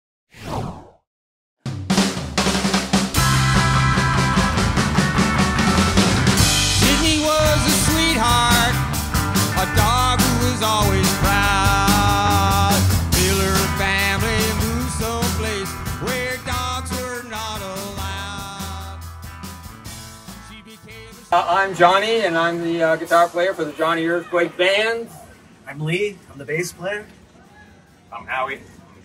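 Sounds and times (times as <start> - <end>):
rock band playing: 1.7 - 21.9
man singing: 6.8 - 8.9, 9.5 - 19.1, 20.3 - 21.8.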